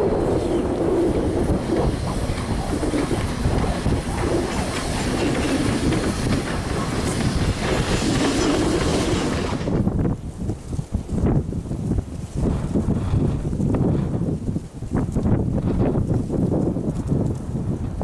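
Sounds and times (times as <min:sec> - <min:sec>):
steam locomotive passing: 0:00.0 - 0:10.2
wheels clattering on rails: 0:00.0 - 0:10.2.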